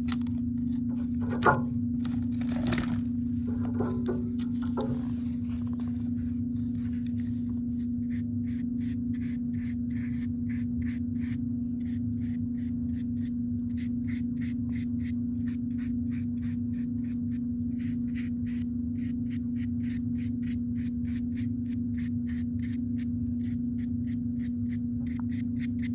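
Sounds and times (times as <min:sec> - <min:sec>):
steady low hum: 0:00.0 - 0:25.9
paintbrush scratchy strokes: 0:05.0 - 0:13.0.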